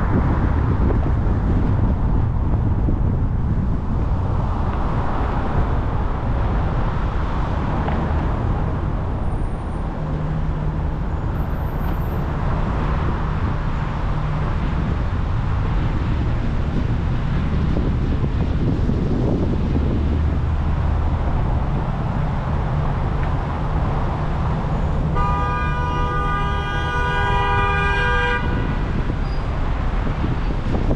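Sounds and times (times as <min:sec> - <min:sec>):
road traffic noise: 0:00.0 - 0:30.9
vehicle horn blast: 0:25.2 - 0:28.8.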